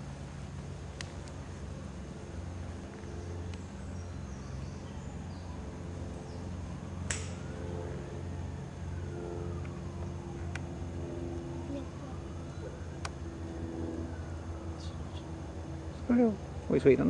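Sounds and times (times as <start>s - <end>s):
low outdoor background hum: 0.0s - 17.0s
sharp click: 7.1s - 7.4s.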